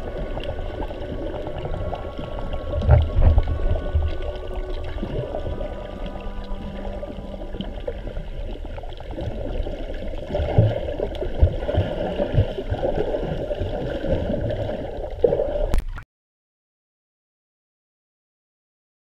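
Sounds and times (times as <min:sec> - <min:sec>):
muffled underwater water noise: 0:00.0 - 0:16.0.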